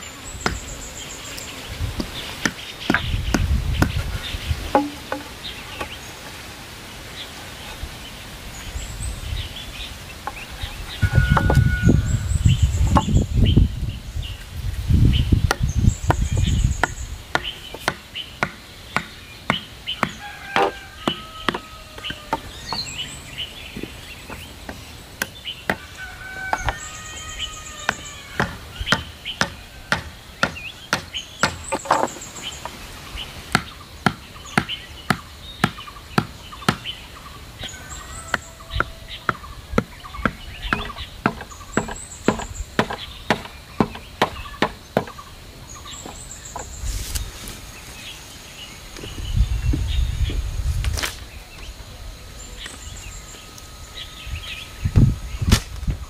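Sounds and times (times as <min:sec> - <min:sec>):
chickens calling: 0:00.0 - 0:50.5
wooden club pounding stakes: 0:02.0 - 0:04.1, 0:04.7 - 0:06.0, 0:15.5 - 0:23.0, 0:27.9 - 0:32.2, 0:33.5 - 0:36.9, 0:38.3 - 0:45.2.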